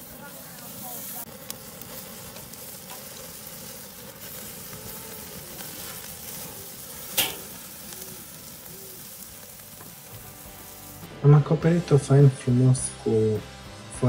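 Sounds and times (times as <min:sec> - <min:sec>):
steak sizzling on a grill: 0:00.0 - 0:13.4
sharp pop: 0:07.2 - 0:07.5.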